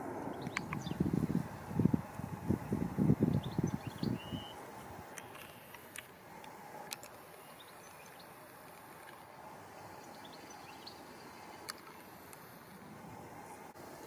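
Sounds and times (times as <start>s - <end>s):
distant jet noise: 0.0s - 14.0s
bird chirps: 0.2s - 1.1s, 3.3s - 4.6s, 7.4s - 8.4s, 10.0s - 12.1s.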